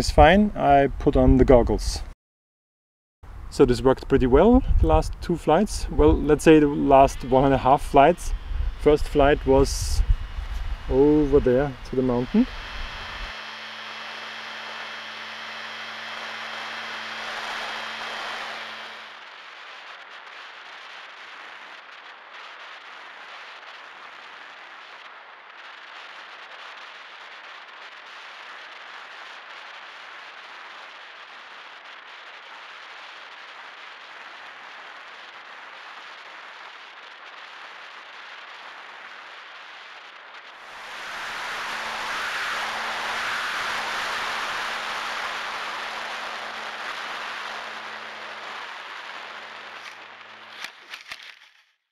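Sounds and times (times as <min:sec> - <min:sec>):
wind hiss past camera: 0:03.3 - 0:19.2, 0:40.0 - 0:50.6
low steady hum: 0:03.3 - 0:22.1, 0:40.6 - 0:50.6.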